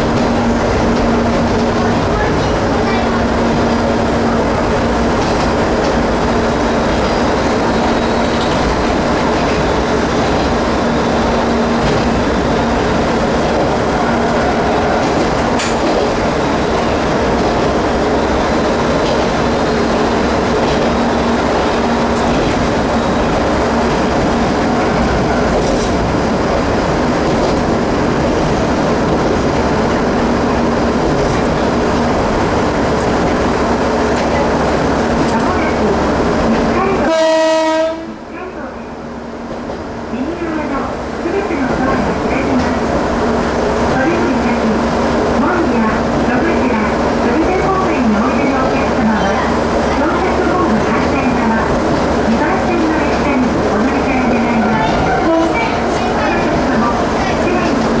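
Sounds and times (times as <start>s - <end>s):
diesel railcar engine rumble: 0.0s - 58.0s.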